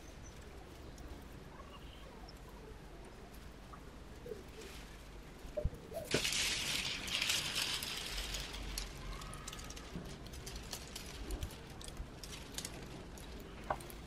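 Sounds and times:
plastic film crinkling: 0:06.0 - 0:14.0.

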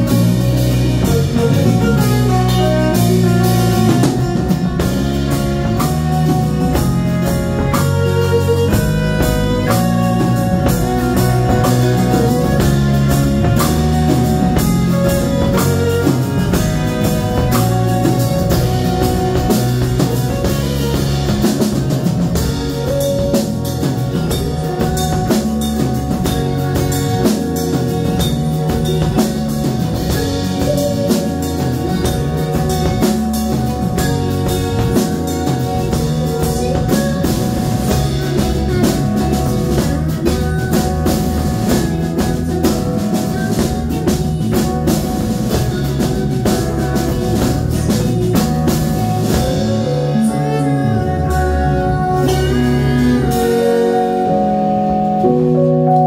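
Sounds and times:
drum kit playing: 0:00.0 - 0:56.0
stage keyboard: 0:00.0 - 0:56.0.

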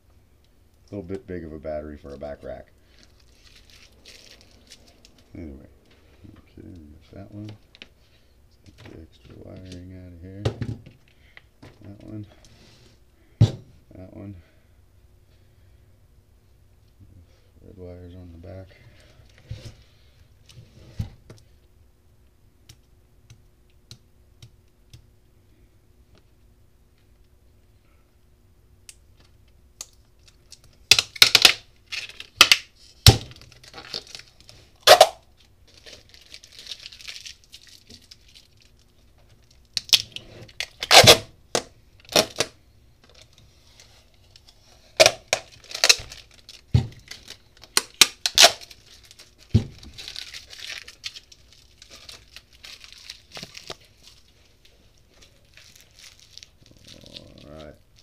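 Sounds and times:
plastic crinkling: 0:02.5 - 0:06.4, 0:29.8 - 0:58.0
tape ripping: 0:29.8 - 0:38.8, 0:39.4 - 0:43.4, 0:44.2 - 0:58.0.

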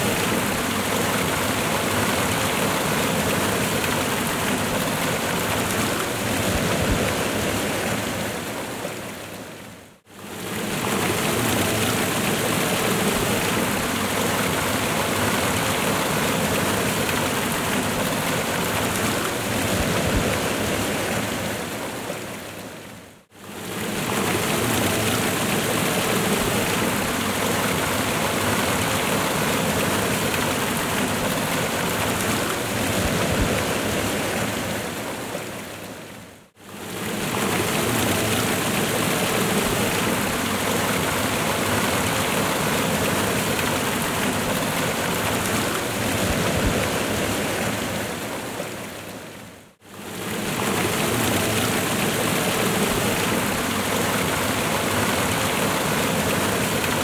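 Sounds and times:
waterfall rushing: 0:23.4 - 0:35.9, 0:36.6 - 0:49.2, 0:49.9 - 0:57.0.

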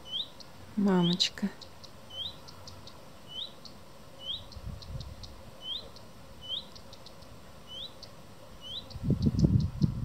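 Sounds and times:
soft bird ticks: 0:00.1 - 0:08.2, 0:08.8 - 0:10.0
songbird rising whistle calls: 0:08.6 - 0:09.7.

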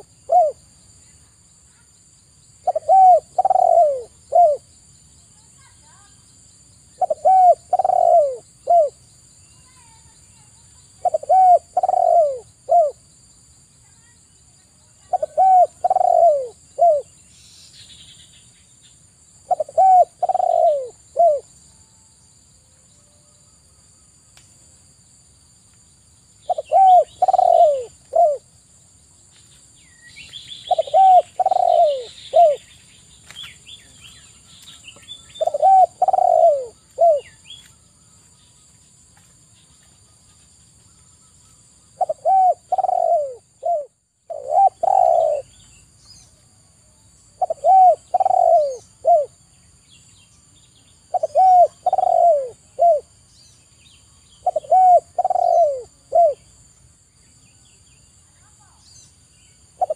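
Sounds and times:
dove cooing: 0:00.0 - 0:00.6, 0:02.6 - 0:04.7, 0:07.0 - 0:09.0, 0:11.0 - 0:13.0, 0:15.0 - 0:17.1, 0:19.4 - 0:21.5, 0:26.5 - 0:28.5, 0:30.7 - 0:32.7, 0:35.4 - 0:37.4, 0:41.9 - 0:45.5, 0:47.4 - 0:49.4, 0:51.1 - 0:53.1, 0:54.4 - 0:56.5.

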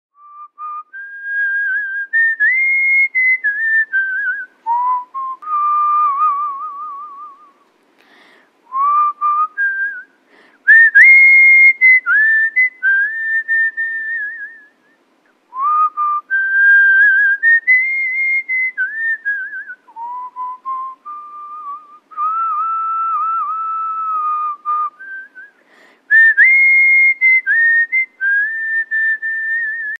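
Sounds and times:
person whistling a tune: 0:00.2 - 0:07.6, 0:08.7 - 0:10.1, 0:10.7 - 0:30.0
breaths: 0:07.9 - 0:08.6, 0:10.1 - 0:10.7, 0:25.5 - 0:26.1.

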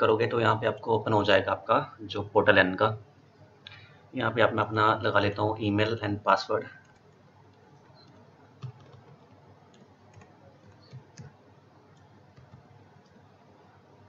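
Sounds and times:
low hiss: 0:00.0 - 0:14.0.

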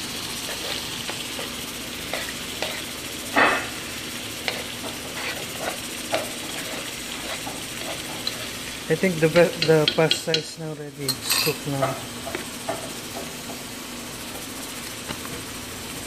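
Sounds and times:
hiss of hot pots: 0:00.0 - 0:15.1
spoon scraping and knocking pot: 0:04.4 - 0:08.5, 0:09.3 - 0:12.9.

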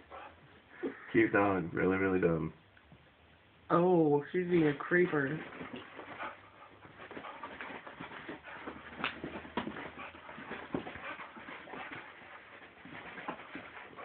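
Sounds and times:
dog paws scuffling on carpet: 0:04.4 - 0:14.0.

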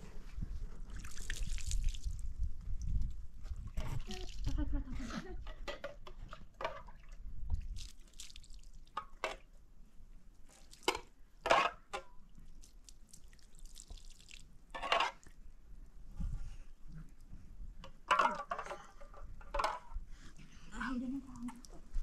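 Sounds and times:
water splashing and dripping: 0:00.9 - 0:04.6, 0:06.2 - 0:09.3, 0:10.4 - 0:11.2, 0:12.2 - 0:15.3.

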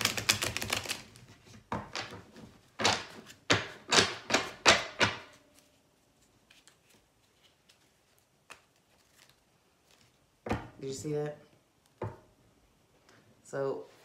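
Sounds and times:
cards being shuffled: 0:00.0 - 0:10.2.

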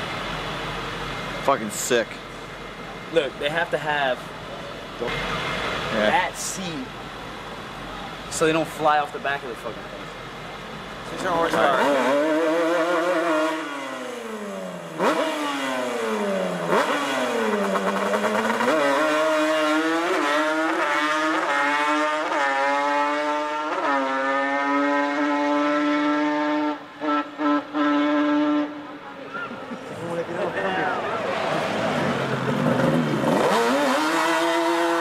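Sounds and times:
atv engine revving and accelerating: 0:11.1 - 0:28.9, 0:30.0 - 0:35.0.

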